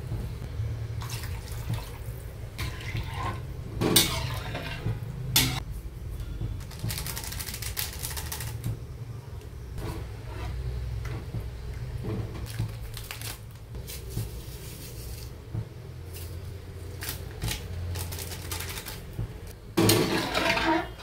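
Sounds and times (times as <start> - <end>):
metal ladle scraping wok: 2.6 - 5.6, 9.8 - 11.2, 19.8 - 21.0
sachet crinkling: 12.5 - 13.6.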